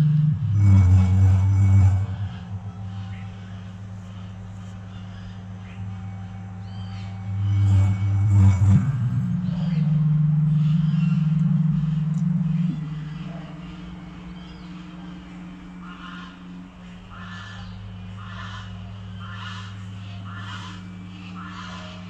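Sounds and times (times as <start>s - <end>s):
low steady tone: 0.0s - 22.0s
ducks quacking: 9.3s - 22.0s.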